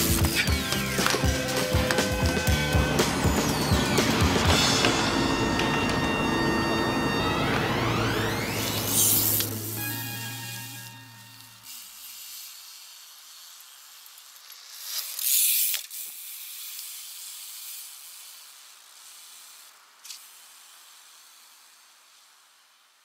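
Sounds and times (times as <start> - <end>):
high hiss: 8.5 - 23.0.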